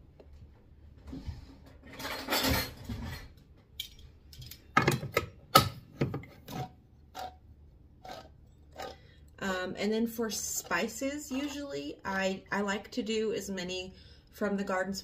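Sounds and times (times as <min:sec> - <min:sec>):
kitchen things knocking and clicking: 0:01.7 - 0:07.3.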